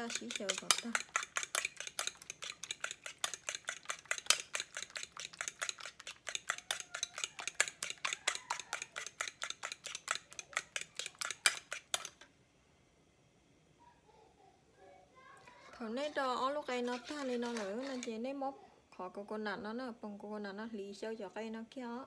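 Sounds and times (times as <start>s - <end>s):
metal utensil beating eggs in bowl: 0.0s - 12.3s, 15.8s - 18.2s.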